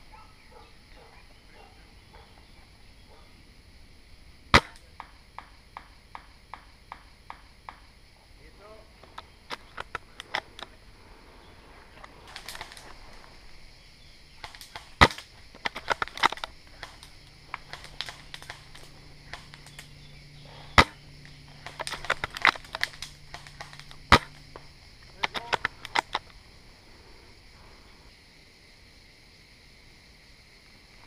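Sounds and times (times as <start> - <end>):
airsoft rifle firing crack: 4.5 - 7.8, 12.0 - 13.3, 14.4 - 26.3.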